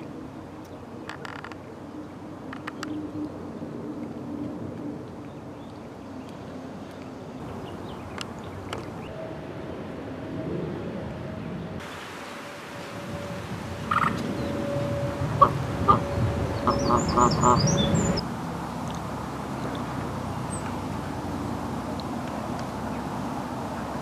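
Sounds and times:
geese honking: 0:13.8 - 0:18.2.

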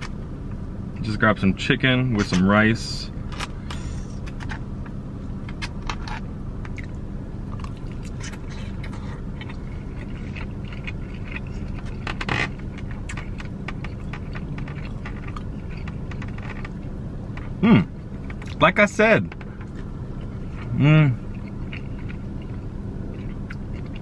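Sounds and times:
close-up chewing: 0:06.1 - 0:17.6, 0:19.5 - 0:24.0.

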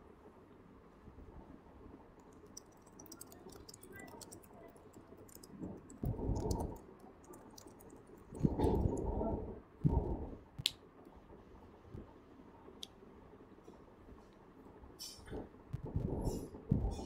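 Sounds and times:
keyboard typing clicks: 0:02.2 - 0:09.1.

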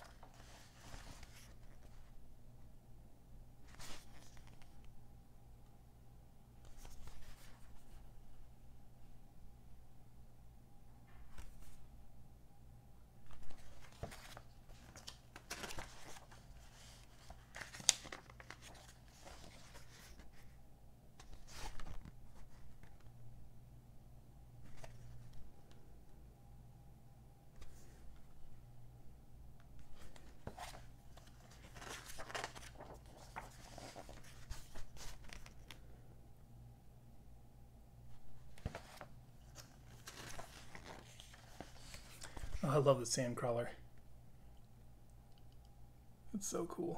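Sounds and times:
magazine pages rustling: 0:00.0 - 0:02.2, 0:03.7 - 0:04.9, 0:06.7 - 0:08.1, 0:13.2 - 0:20.6, 0:21.2 - 0:23.1, 0:24.6 - 0:25.5, 0:29.8 - 0:35.9, 0:38.1 - 0:42.8
steady low hum: 0:00.0 - 0:46.7.

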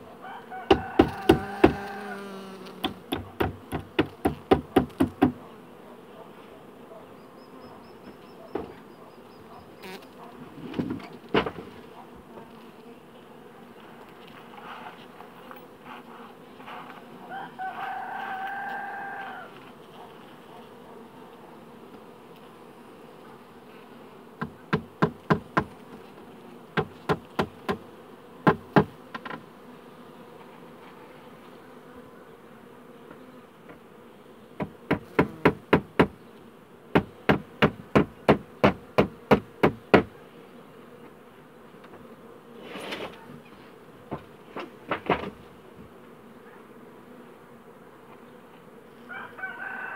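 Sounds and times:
honeybee colony humming: 0:00.0 - 0:49.9
queen bee piping: 0:00.0 - 0:49.9.

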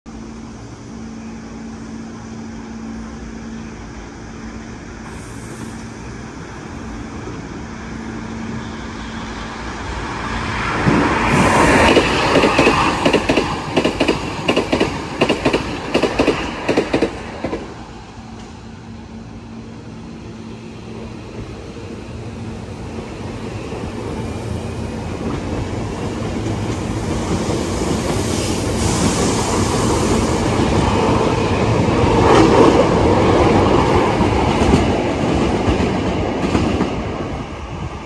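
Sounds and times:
electric train passing: 0:00.1 - 0:38.0
train wheels clacking on rail joints: 0:10.8 - 0:17.7.

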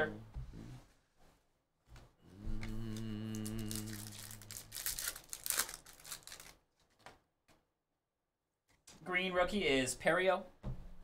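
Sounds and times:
steady low hum: 0:02.3 - 0:05.0
foil wrappers crinkling and tearing: 0:03.6 - 0:07.0.

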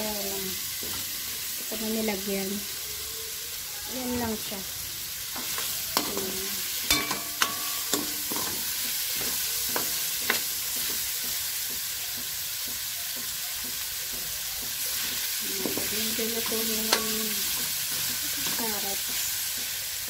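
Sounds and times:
food sizzling in a wok: 0:00.0 - 0:20.0
spoon scraping wok: 0:05.3 - 0:11.9, 0:14.7 - 0:20.0
metal spoon knocking on wok: 0:06.9 - 0:14.8, 0:15.6 - 0:19.8.

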